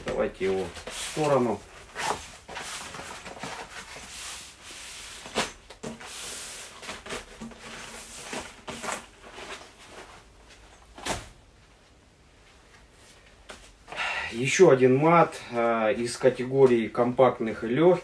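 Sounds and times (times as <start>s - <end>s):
shooting mat rustling: 0.0s - 11.8s.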